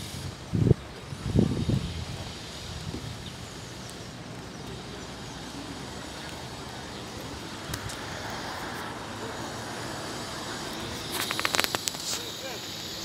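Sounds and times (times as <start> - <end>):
distant road traffic: 0.0 - 13.0
faint clicks: 11.1 - 12.2.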